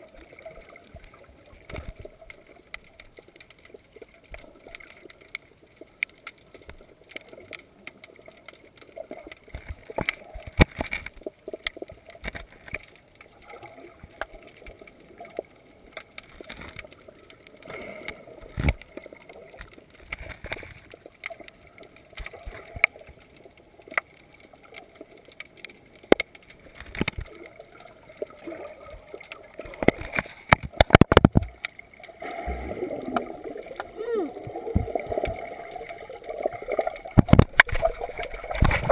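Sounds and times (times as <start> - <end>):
sharp clicks and knocks: 29.7 - 31.8.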